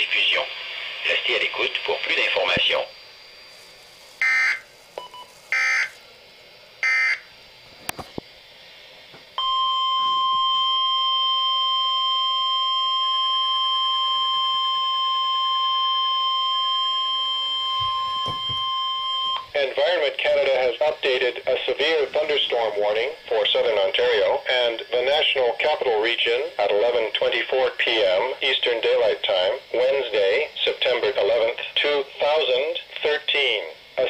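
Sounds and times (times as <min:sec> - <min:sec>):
warning alarm tone: 0:04.2 - 0:06.0, 0:06.8 - 0:07.3, 0:09.4 - 0:19.5.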